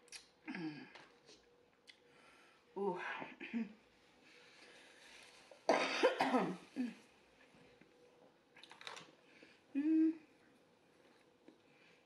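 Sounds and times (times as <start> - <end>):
woman coughing: 5.7 - 7.0.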